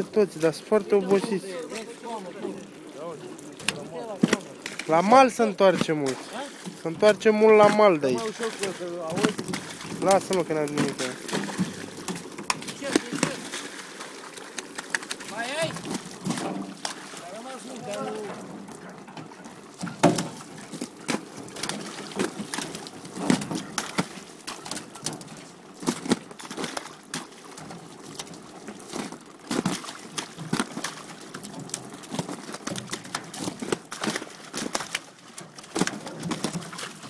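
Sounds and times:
water dripping and splashing: 0.0s - 37.0s
fish flapping on steel: 8.2s - 18.1s.

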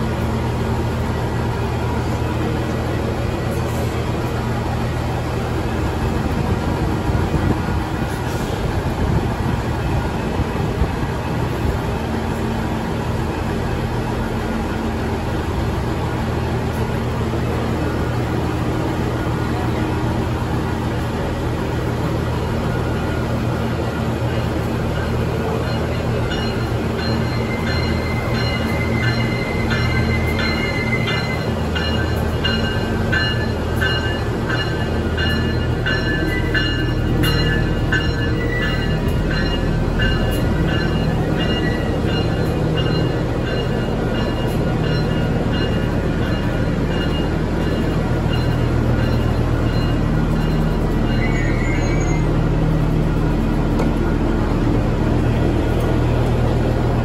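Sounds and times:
high ringing: 24.4s - 52.4s
high squeal: 51.1s - 52.4s.

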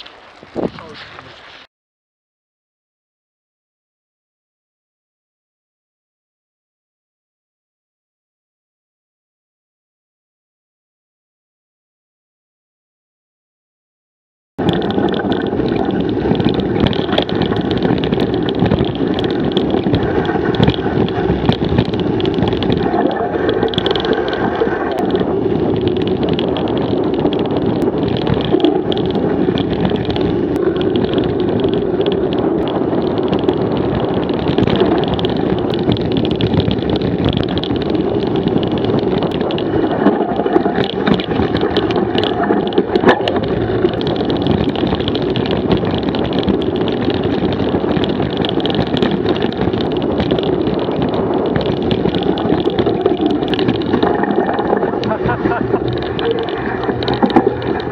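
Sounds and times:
wind rush: 0.0s - 1.4s, 14.6s - 57.9s
bike tyre noise on dirt: 0.0s - 1.7s, 14.6s - 57.9s
bike frame rattling and clicking: 14.6s - 57.9s.

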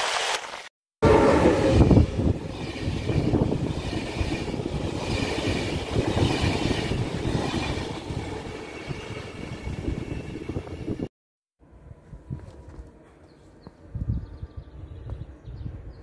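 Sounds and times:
train wheels rumbling on rails: 1.0s - 11.1s.

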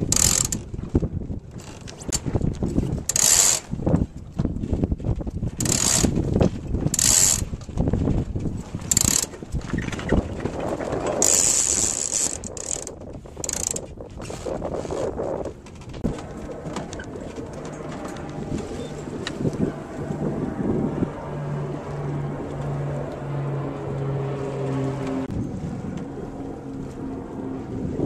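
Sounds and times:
winch ratcheting: 0.0s - 0.6s, 2.8s - 3.7s, 5.6s - 6.2s, 6.9s - 7.5s, 8.8s - 10.2s, 11.0s - 13.9s.

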